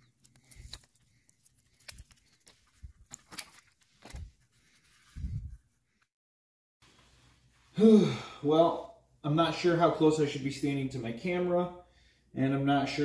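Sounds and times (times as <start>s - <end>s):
handling clicks and rustles: 0.0s - 4.9s.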